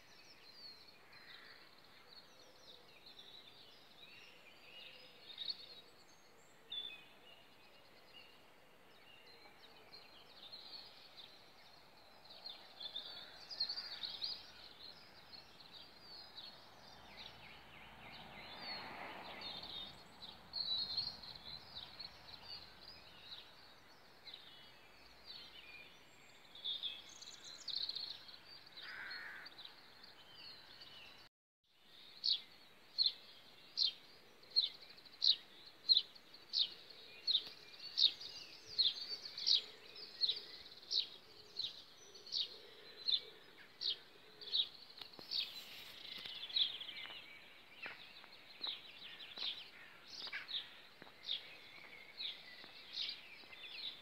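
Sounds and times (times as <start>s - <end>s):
songbird calls: 32.2s - 54.0s.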